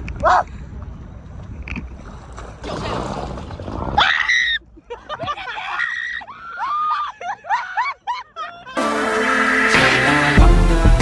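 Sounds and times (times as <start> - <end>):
women screaming: 5.4 - 8.8.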